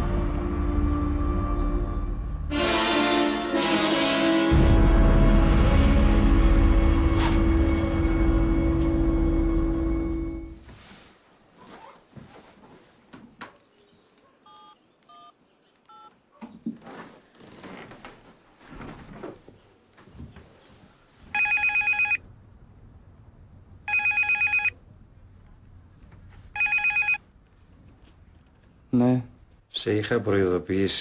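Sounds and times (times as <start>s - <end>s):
rustling: 9.4s - 13.3s
phone keypad beeps: 14.5s - 15.3s, 15.9s - 16.1s, 21.4s - 22.2s, 23.9s - 24.7s, 26.6s - 27.2s
telephone ringing: 21.3s - 22.2s, 23.9s - 24.8s, 26.5s - 27.2s.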